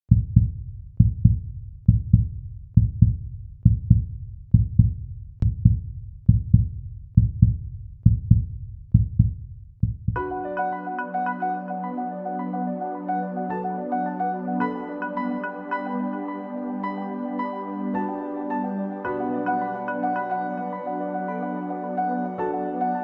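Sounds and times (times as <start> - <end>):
heartbeat thumps: 0.1 - 10.2.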